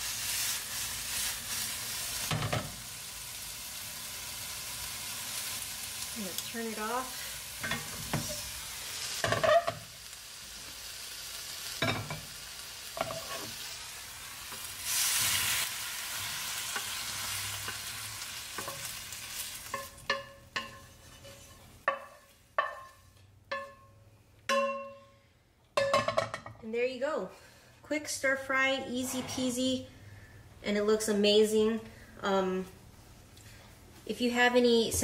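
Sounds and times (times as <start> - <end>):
vegetables sizzling in skillet: 0.0 - 23.1
wooden spatula knocking metal pan: 21.9 - 25.0.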